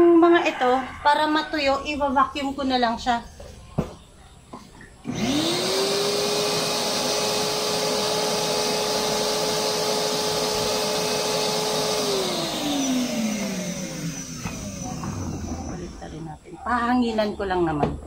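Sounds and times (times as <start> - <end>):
vacuum cleaner running: 5.0 - 16.3.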